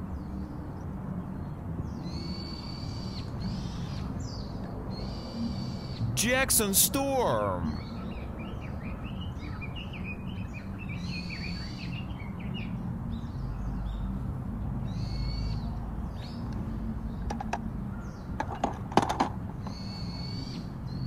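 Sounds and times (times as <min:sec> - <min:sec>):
low background noise: 0:06.2 - 0:07.8.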